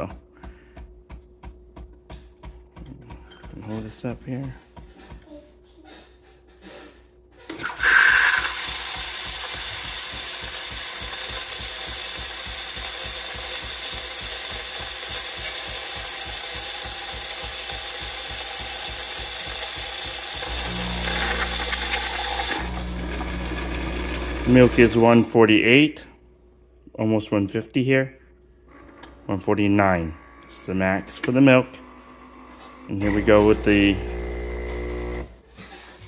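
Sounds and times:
coffee machine frothing milk: 0:07.6 - 0:25.2, 0:32.5 - 0:35.3.

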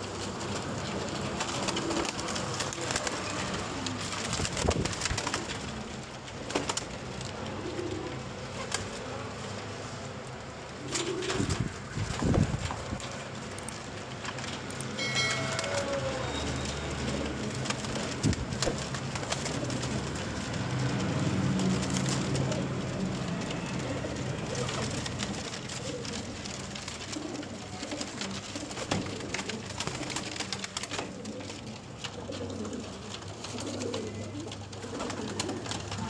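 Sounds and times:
pigeons cooing: 0:00.0 - 0:36.0.

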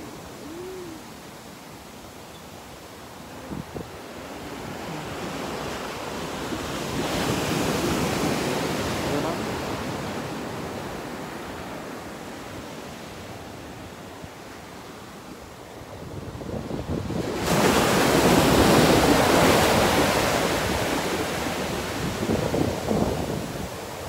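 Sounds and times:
ocean surf washing onto beach: 0:00.0 - 0:24.0
wind on the microphone: 0:03.3 - 0:11.2, 0:15.7 - 0:24.0.

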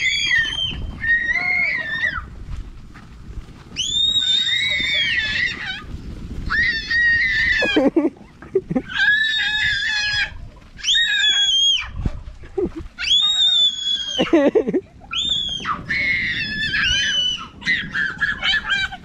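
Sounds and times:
child shrieking: 0:15.3 - 0:19.0.

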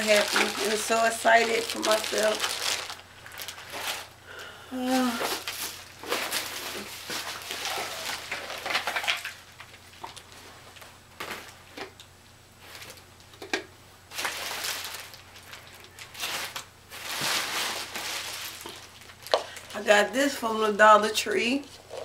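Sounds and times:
packaging rustling and crinkling: 0:00.0 - 0:04.2, 0:04.8 - 0:12.0, 0:12.6 - 0:13.4, 0:14.1 - 0:20.0.

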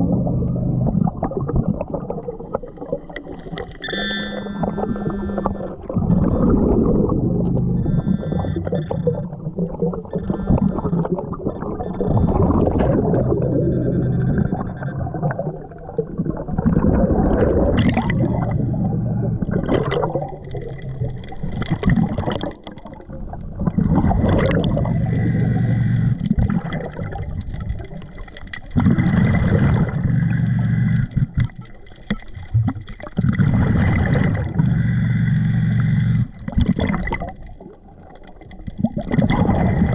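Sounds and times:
steady low hum: 0:00.0 - 0:01.2, 0:03.8 - 0:11.0, 0:16.8 - 0:22.1, 0:23.6 - 0:28.0, 0:28.7 - 0:31.8, 0:33.2 - 0:37.0
exhaled bubbles gurgling: 0:00.0 - 0:39.9
regulator inhalations: 0:34.4 - 0:36.4.

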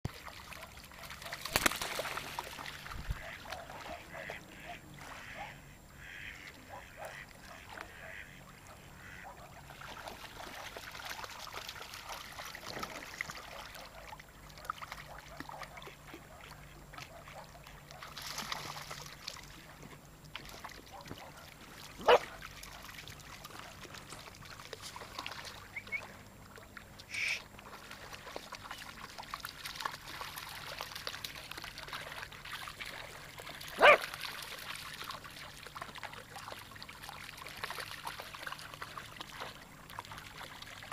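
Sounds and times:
waterfowl calling: 0:03.0 - 0:09.6, 0:27.1 - 0:27.5.

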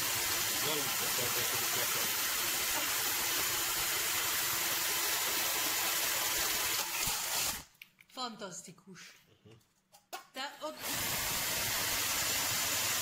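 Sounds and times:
cordless drill drilling into metal: 0:00.0 - 0:07.7, 0:10.8 - 0:13.0.

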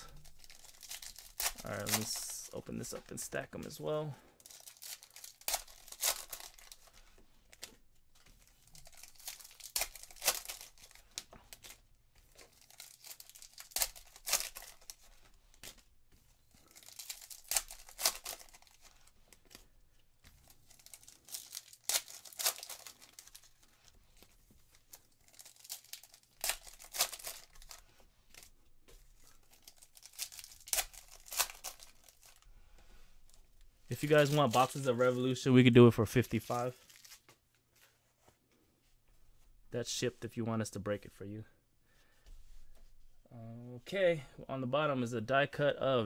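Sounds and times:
foil wrappers tearing and crinkling: 0:00.0 - 0:02.5, 0:04.4 - 0:07.7, 0:08.4 - 0:15.9, 0:16.5 - 0:19.7, 0:20.3 - 0:28.5, 0:29.1 - 0:32.4, 0:33.9 - 0:35.2, 0:36.2 - 0:37.3
cards being handled and stacked: 0:00.1 - 0:03.8, 0:04.4 - 0:35.3, 0:36.1 - 0:39.5.

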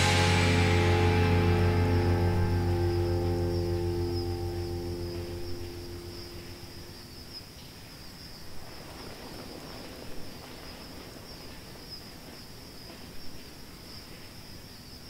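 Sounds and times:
low background rumble: 0:00.0 - 0:07.1.

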